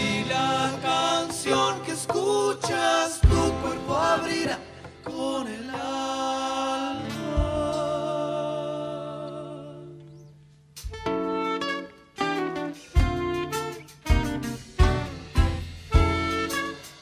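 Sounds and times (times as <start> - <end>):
person singing: 0.0 - 10.1.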